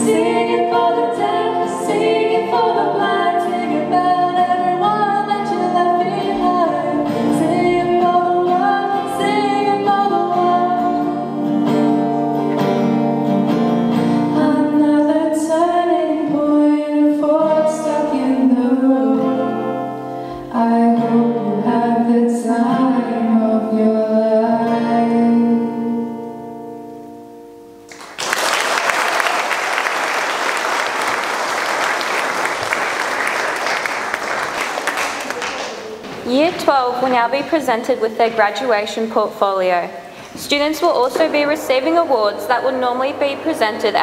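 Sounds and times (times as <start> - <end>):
plucked guitar: 0.0 - 15.3.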